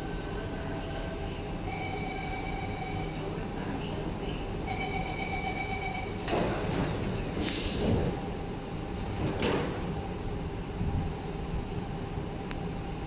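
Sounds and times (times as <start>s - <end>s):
steady warning tone: 0.0s - 6.6s
air hissing: 7.4s - 8.0s.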